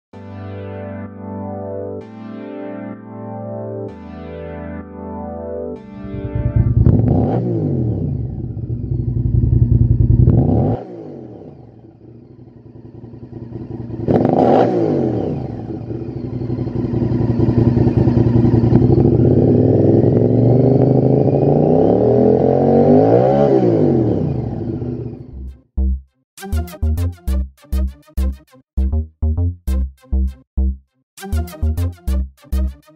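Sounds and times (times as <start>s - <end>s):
motorcycle engine revving: 6.0s - 25.5s.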